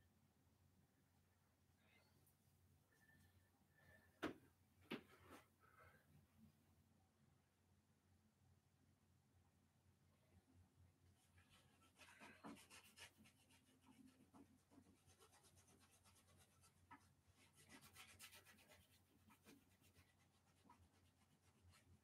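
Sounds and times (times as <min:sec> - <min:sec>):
paintbrush rubbing on canvas: 0:11.3 - 0:22.0.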